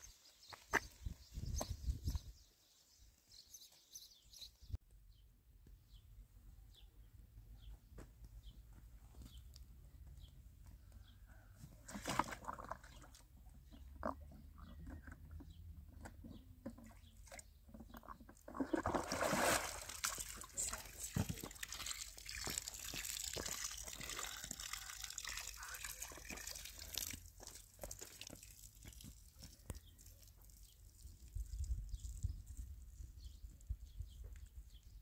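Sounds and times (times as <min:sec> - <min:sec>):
bird chirping: 0:00.0 - 0:07.8
footsteps crunching on stones: 0:21.0 - 0:24.6.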